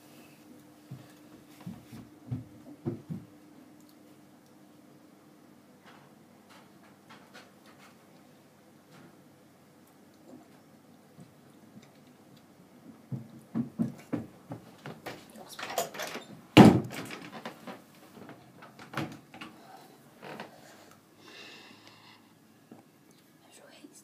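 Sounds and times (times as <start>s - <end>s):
handling knocks and bumps: 13.1s - 19.4s.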